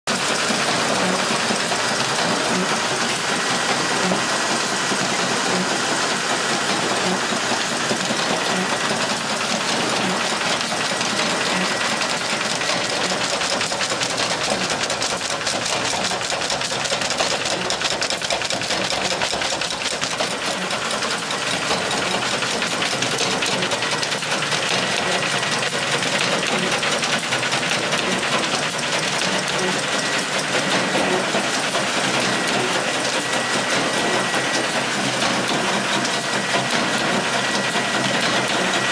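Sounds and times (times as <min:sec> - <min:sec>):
machine mechanical chatter: 0:00.1 - 0:38.9.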